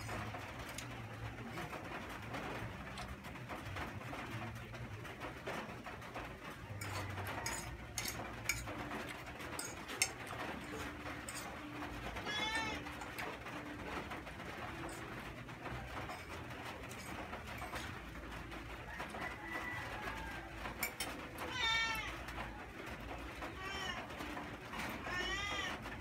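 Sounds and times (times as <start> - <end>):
fork clicking on plate: 6.8 - 11.5.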